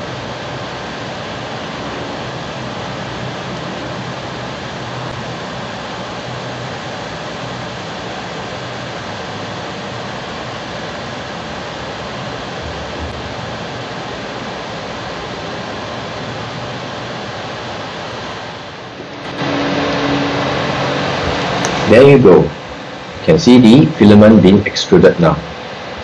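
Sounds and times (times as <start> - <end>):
cooling fans whirring: 0.0 - 26.0.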